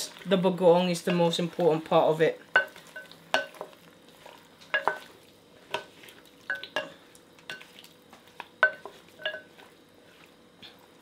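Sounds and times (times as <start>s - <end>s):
wooden spoon stirring in glass pot: 7.5s - 10.9s.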